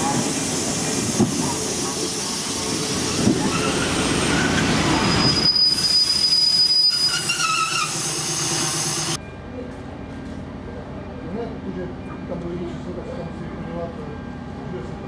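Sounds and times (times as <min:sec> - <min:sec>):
railcar wheels rumbling: 0:00.0 - 0:15.0
wheel squealing against rail: 0:03.1 - 0:09.2.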